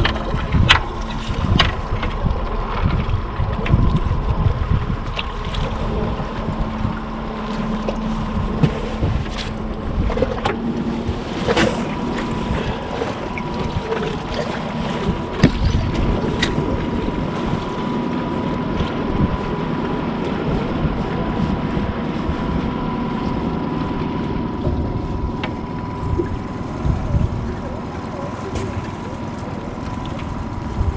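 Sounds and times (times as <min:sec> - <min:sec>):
thin steady whine: 0:00.0 - 0:30.9
wind buffeting microphone: 0:00.0 - 0:30.9.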